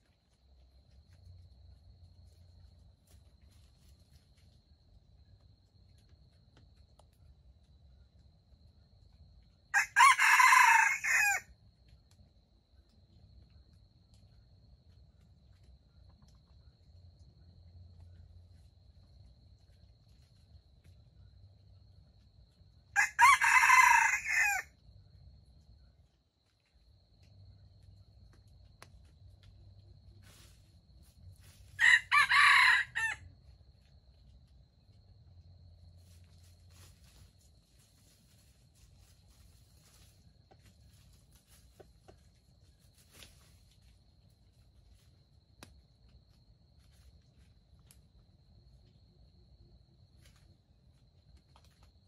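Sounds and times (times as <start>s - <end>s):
rooster crowing: 9.7s - 11.5s, 23.0s - 24.7s, 31.8s - 33.3s
birds scratching in leaf litter: 36.0s - 42.1s.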